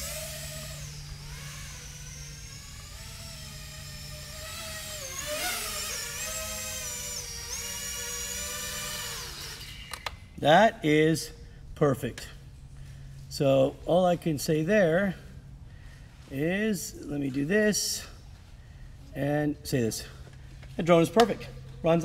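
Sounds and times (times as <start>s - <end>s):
drone motors whining: 0.0s - 10.4s.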